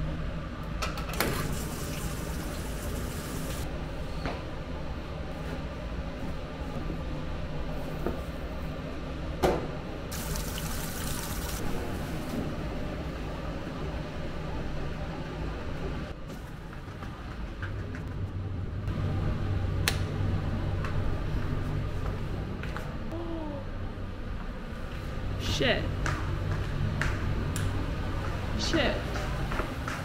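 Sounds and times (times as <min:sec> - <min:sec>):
low hum: 0:11.6 - 0:29.9.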